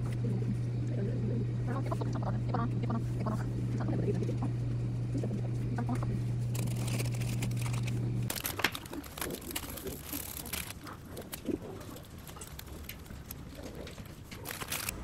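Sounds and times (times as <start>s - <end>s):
steady low hum: 0.0s - 15.0s
plastic wrapper crinkling: 6.4s - 15.0s
seasoning sachet tearing: 6.4s - 15.0s.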